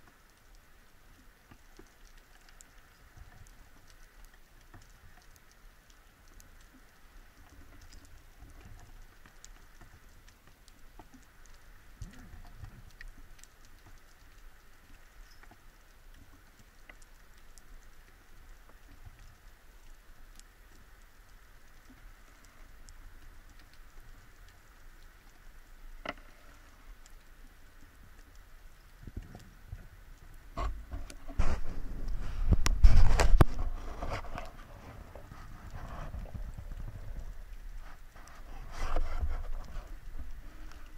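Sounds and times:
underwater clicks and ticks: 0.0s - 40.9s
low underwater rumble: 28.9s - 40.9s.

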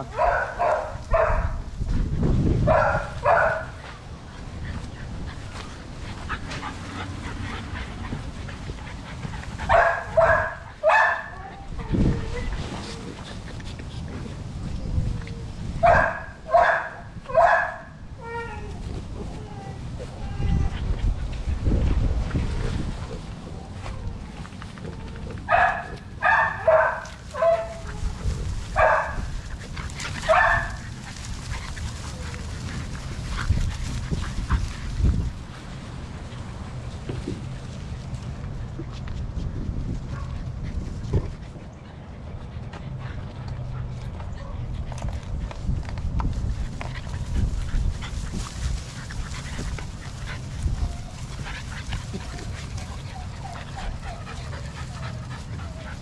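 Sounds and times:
puppies barking and yipping: 0.0s - 1.6s, 2.7s - 21.6s, 22.4s - 38.1s, 46.8s - 56.0s
rustling in grass: 0.0s - 56.0s
puppies whimpering and yipping: 4.4s - 13.9s, 47.8s - 56.0s.

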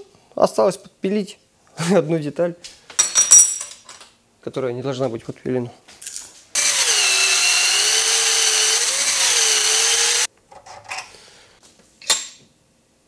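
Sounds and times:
drill grinding steel: 6.6s - 10.3s.

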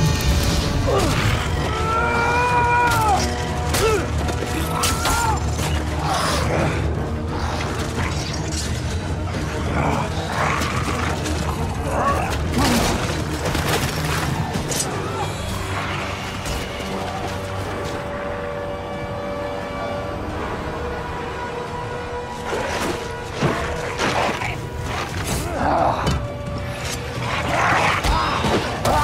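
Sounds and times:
low musical score: 0.0s - 29.0s
fighting clashes and impacts: 2.5s - 5.9s, 10.5s - 15.1s.

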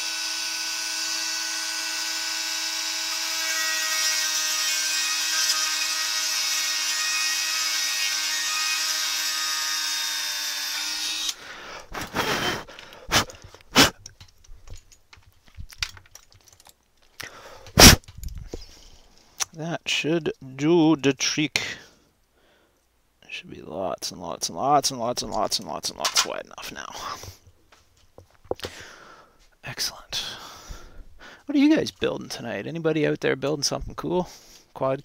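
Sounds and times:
rotary tool whining: 0.0s - 14.0s
sharp clicks and knocks: 12.8s - 17.3s.

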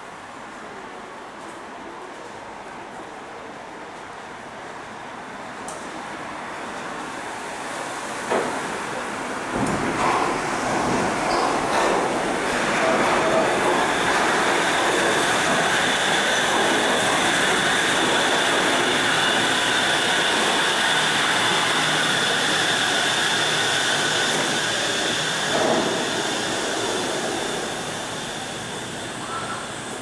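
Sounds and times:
monorail train humming and whining: 0.0s - 30.0s.

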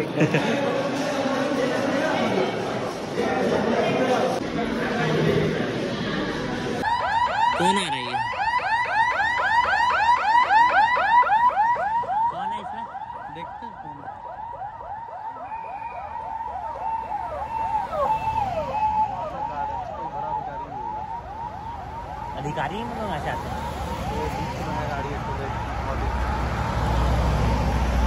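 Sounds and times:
electronic siren yelping: 6.8s - 26.8s.

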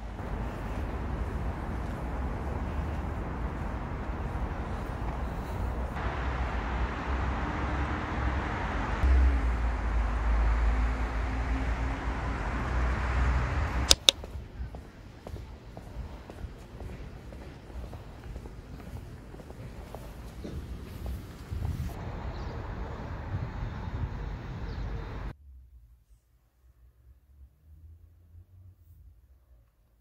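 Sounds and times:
footsteps on pavement: 0.0s - 6.1s, 13.9s - 22.0s
wind buffeting microphone: 0.0s - 9.6s, 11.6s - 25.3s
sharp clicks: 13.8s - 14.3s.

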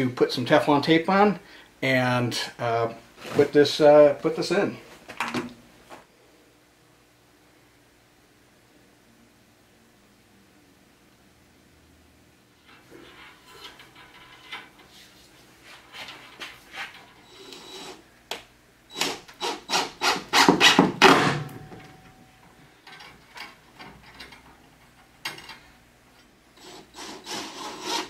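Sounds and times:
rasping rubbing strokes: 12.7s - 18.0s, 26.6s - 28.0s.

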